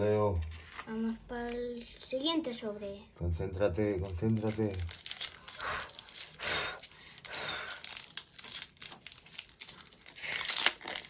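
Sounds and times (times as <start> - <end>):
foil wrapper crinkling: 3.8 - 11.0.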